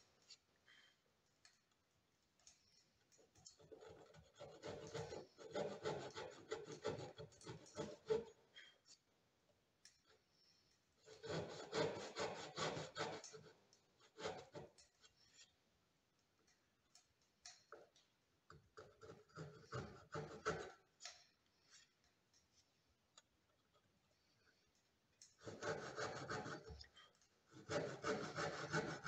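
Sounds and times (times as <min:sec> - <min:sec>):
hand saw cutting wood: 0:03.7 - 0:08.4, 0:11.0 - 0:15.0, 0:18.8 - 0:21.2, 0:25.4 - 0:26.9, 0:27.5 - 0:29.0.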